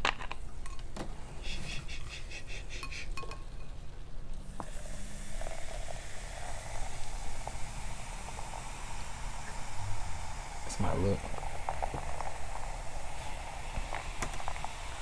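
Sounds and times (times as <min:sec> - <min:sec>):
soda fizzing over ice: 0:04.4 - 0:15.0.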